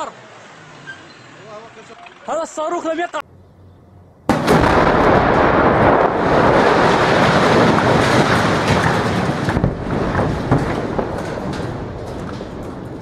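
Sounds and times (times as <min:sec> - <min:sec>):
large explosion rumbling: 0:04.3 - 0:13.0
sharp cracks: 0:04.3 - 0:13.0.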